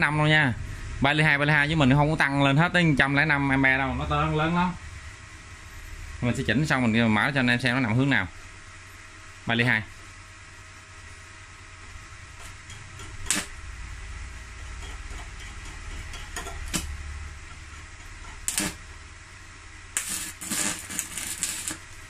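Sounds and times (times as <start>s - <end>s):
welding arc crackling: 11.7s - 22.0s.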